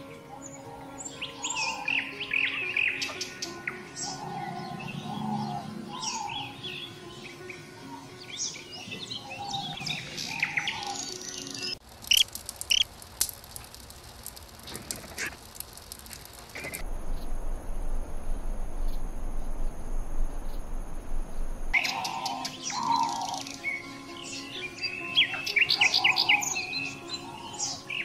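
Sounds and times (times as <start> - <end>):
songbirds chirping: 0.0 - 14.4, 15.2 - 28.0
high-pitched hum: 16.8 - 21.8.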